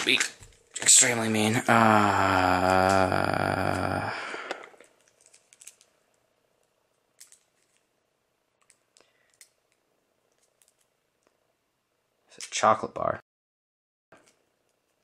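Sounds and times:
man humming: 1.6s - 4.5s
foil wrapping crinkling: 4.7s - 6.1s.

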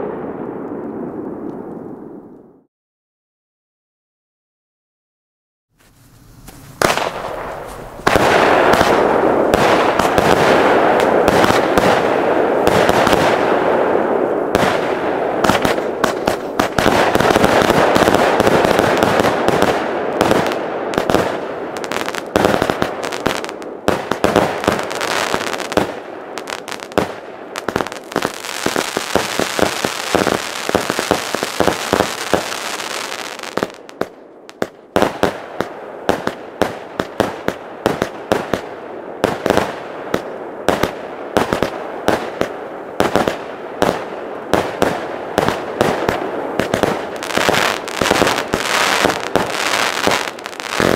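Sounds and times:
fireworks barrage crackling: 0.0s - 2.6s, 5.8s - 50.9s.

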